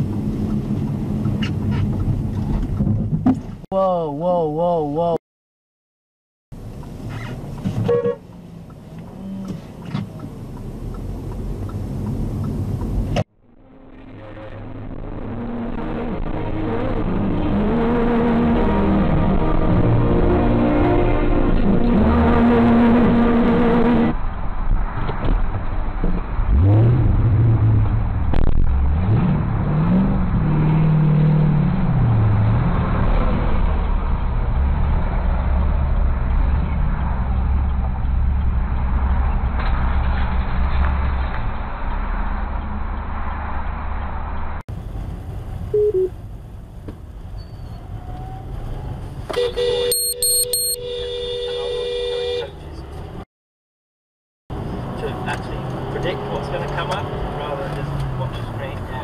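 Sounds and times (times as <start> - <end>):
car road and engine noise: 0.0 - 5.2, 6.5 - 53.3, 54.5 - 59.0
highway traffic: 0.0 - 5.2, 6.5 - 53.2, 54.5 - 59.0
car horn honk: 7.8 - 8.3, 49.3 - 52.6
vehicle engine revving: 54.5 - 59.0.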